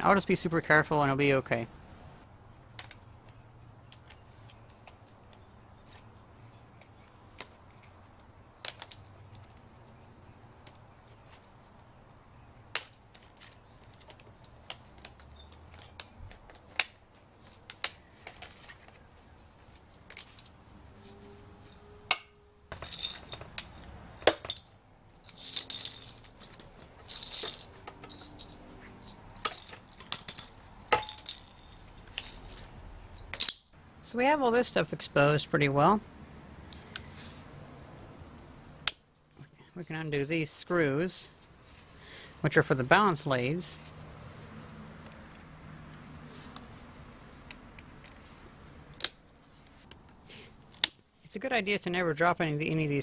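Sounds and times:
rustling and scraping: 4.0 - 10.0, 10.7 - 11.8, 12.9 - 33.6, 37.0 - 37.6, 41.3 - 42.3, 43.6 - 51.4
small metal clicks and clinks: 22.7 - 33.8.

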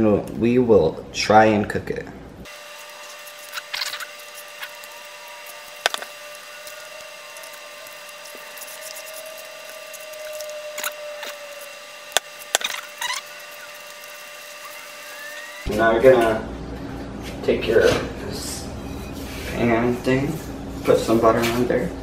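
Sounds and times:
faint steady hum: 1.8 - 20.9
hand squishing batter: 3.1 - 14.2.

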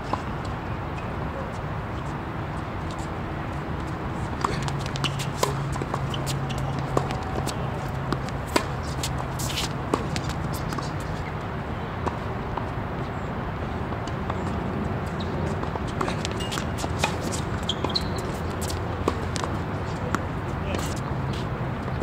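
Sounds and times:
background hum and hiss: 0.0 - 22.0.

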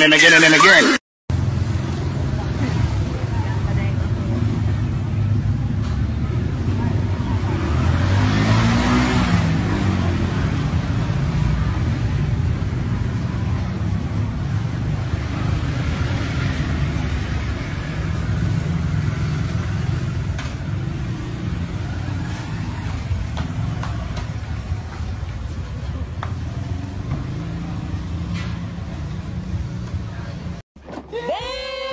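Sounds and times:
cars passing: 0.0 - 30.6.

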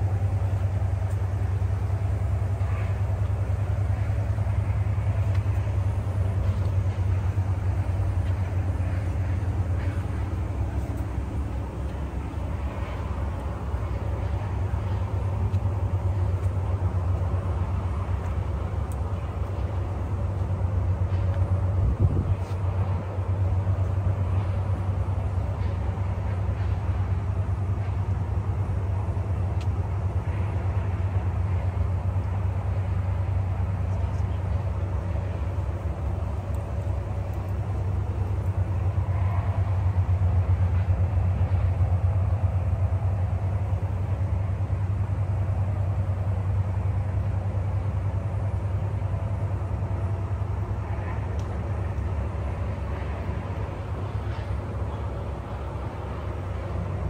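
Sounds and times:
wind buffeting microphone: 20.6 - 23.5.

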